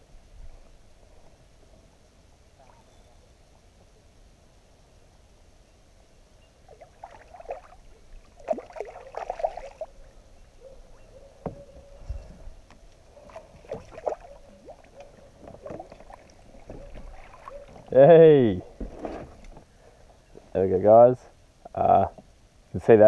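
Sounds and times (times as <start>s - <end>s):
fish thrashing and splashing: 8.4s - 9.9s, 13.2s - 14.9s, 15.6s - 17.9s.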